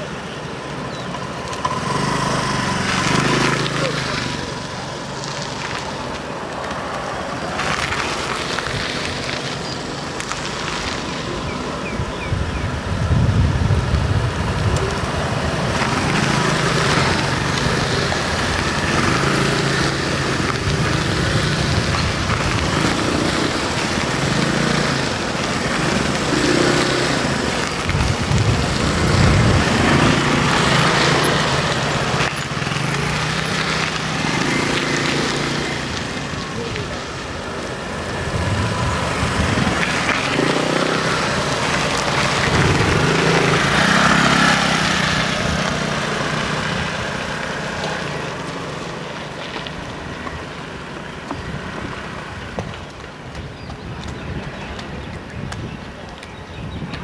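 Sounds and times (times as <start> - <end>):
motor scooters riding past: 0.0 - 57.0.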